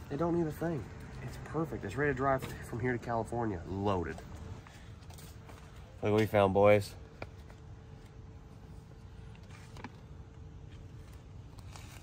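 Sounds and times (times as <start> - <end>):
faint steady hum: 0.0 - 12.0
sticker sheet rustling and peeling: 9.2 - 12.0.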